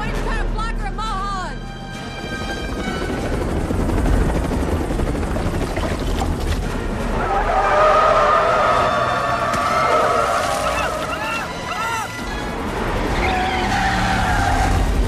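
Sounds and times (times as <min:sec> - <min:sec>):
helicopter rotor chopping: 0:01.9 - 0:07.1.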